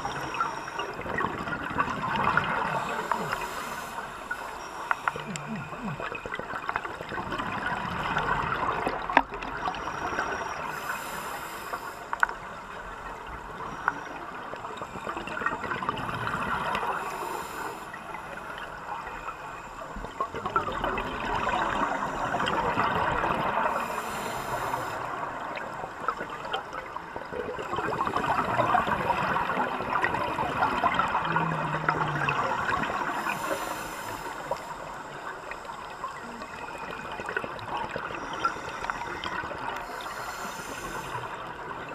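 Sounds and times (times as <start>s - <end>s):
exhaled air bubbling: 0.0s - 41.9s
regulator inhalation hiss: 2.6s - 6.1s, 10.6s - 12.2s, 17.0s - 18.4s, 23.7s - 25.3s, 33.1s - 37.0s, 38.2s - 41.5s.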